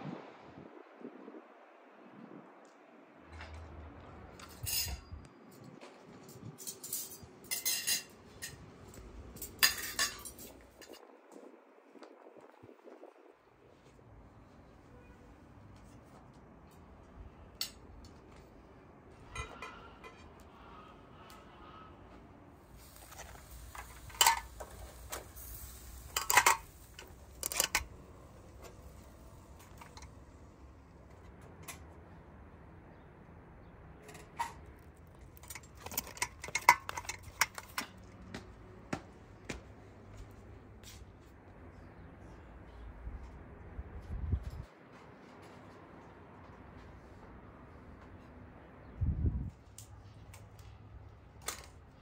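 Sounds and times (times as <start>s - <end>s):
metal skewers clinking: 4.4s - 5.2s, 6.4s - 11.0s, 22.8s - 30.1s, 34.0s - 38.0s
plates and cutlery clinking: 6.5s - 11.0s, 25.9s - 27.9s.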